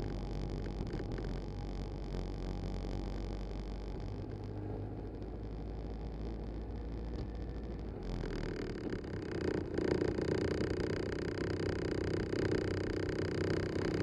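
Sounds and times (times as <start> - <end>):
motorcycle engine drone: 0.0 - 14.0.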